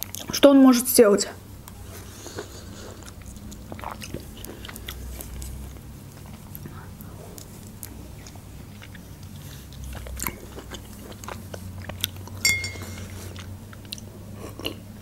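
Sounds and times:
person chewing and lip smacking: 0.0 - 0.3, 1.6 - 15.0
sharp ringing clink: 12.4 - 13.0.

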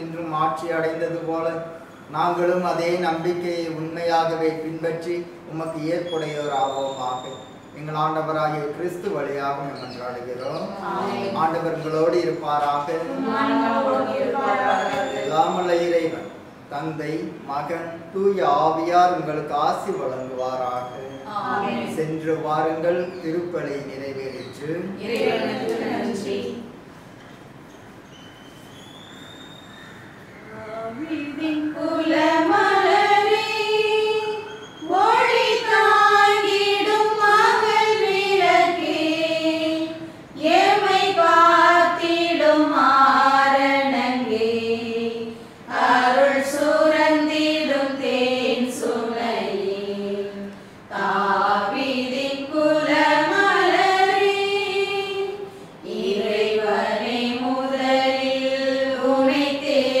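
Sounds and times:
choir singing a hymn: 10.7 - 11.8, 12.9 - 15.8, 21.2 - 22.2, 25.0 - 26.8, 30.5 - 60.0.

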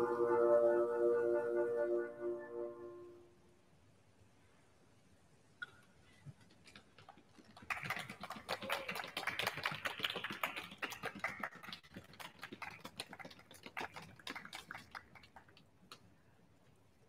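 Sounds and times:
sparse hand clapping: 7.6 - 16.1.

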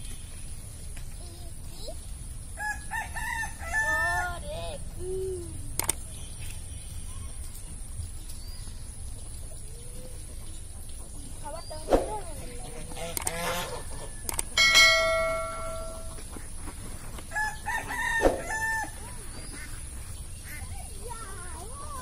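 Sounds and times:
rooster crowing: 2.6 - 4.5, 17.3 - 19.1
sharp click: 5.8 - 6.0, 13.1 - 13.4, 14.2 - 14.6.

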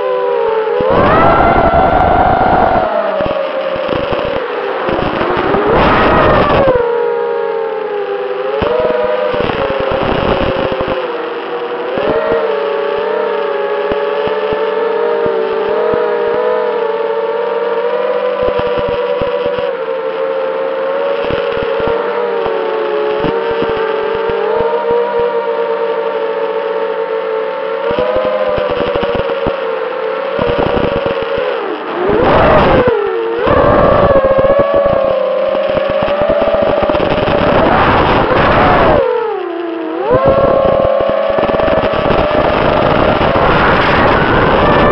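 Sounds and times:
drone motors whining: 0.0 - 44.9
quadcopter motors whining: 0.6 - 7.0, 30.4 - 44.9.

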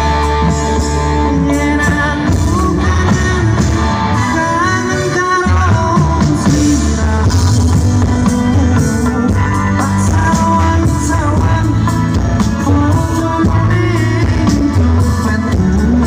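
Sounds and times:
drums: 0.0 - 16.0
guitar: 0.0 - 16.0
heavy steady bass: 0.0 - 16.0
keyboard: 0.0 - 16.0
man singing into microphone: 0.0 - 16.0.

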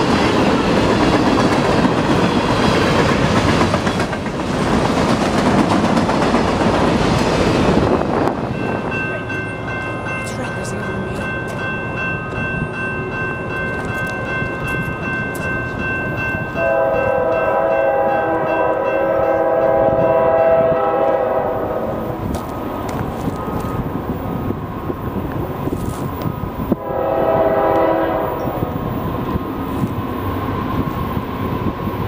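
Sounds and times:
train air horn chord: 16.6 - 22.0, 26.8 - 28.6.

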